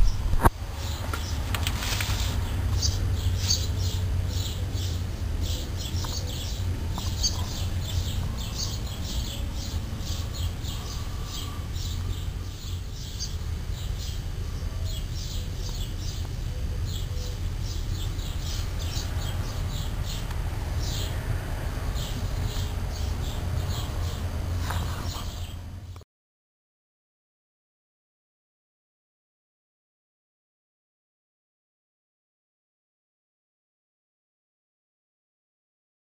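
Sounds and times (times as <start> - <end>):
small birds chirping: 0.0 - 26.0
steady low rumble: 0.0 - 26.0.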